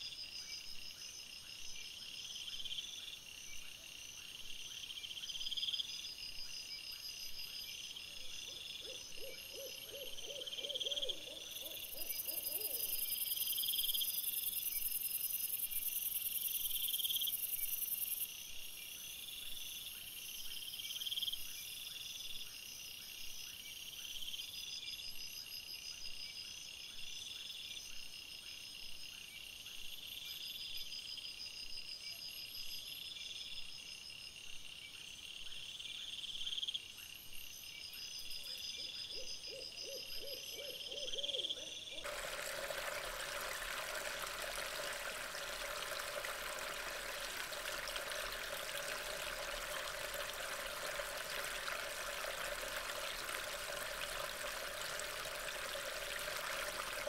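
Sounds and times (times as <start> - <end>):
crickets trilling: 42.0 - 57.0.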